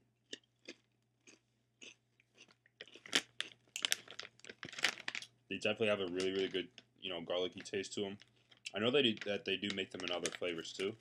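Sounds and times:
person chewing crunchy cracker: 0.2 - 5.3.

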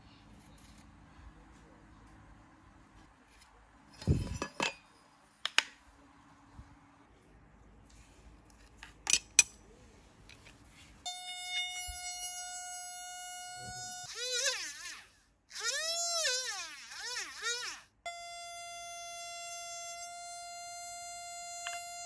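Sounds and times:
rotary tool whining: 11.1 - 22.0.

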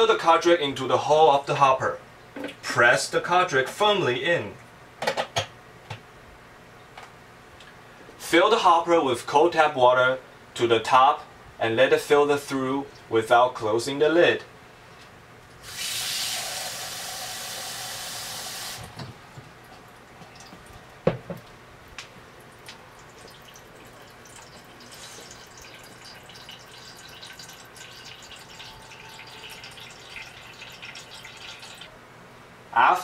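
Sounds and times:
water trickling and dripping: 19.6 - 21.0, 22.2 - 31.9
jug set down knock: 21.1 - 21.4.

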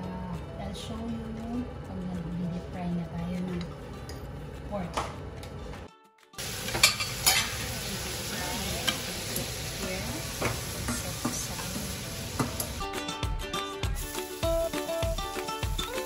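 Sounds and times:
background music: 0.0 - 16.0
oil sizzling and bubbling: 6.4 - 12.9, 13.9 - 16.0.

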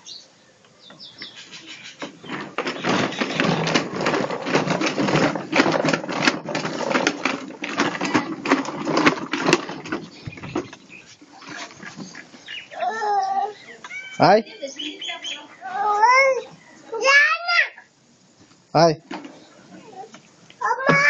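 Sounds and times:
plastic toy wheels rattling on ground: 1.6 - 13.2, 19.1 - 21.0.

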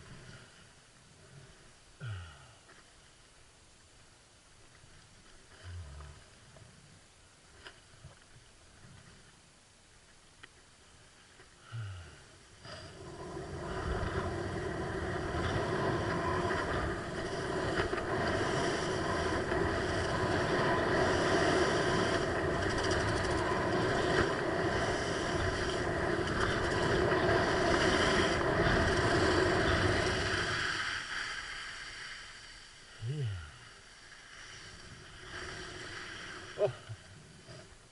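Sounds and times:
wind on microphone: 12.7 - 30.8
skis sliding over snow: 12.7 - 32.8.

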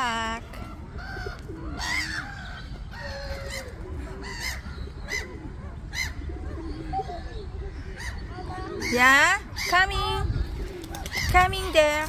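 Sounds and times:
waterbirds calling: 0.0 - 12.0.

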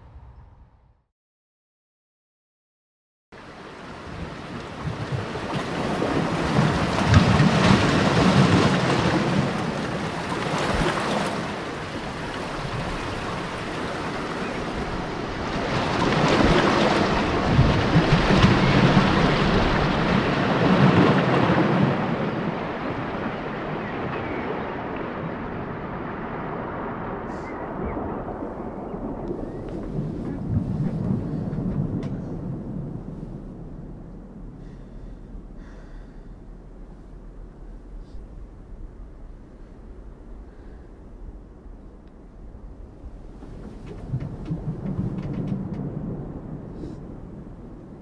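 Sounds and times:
waves washing over rocks: 3.4 - 24.0.

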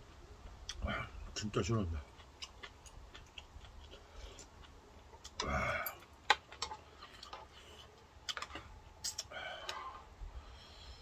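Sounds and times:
chewing: 0.0 - 10.0.

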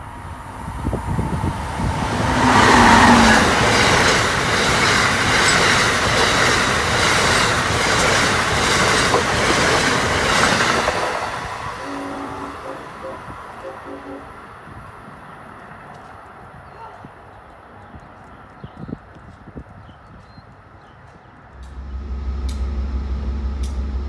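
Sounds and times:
passenger train passing at speed: 0.0 - 19.8, 20.6 - 24.0
clatter of train wheels: 2.4 - 11.4.

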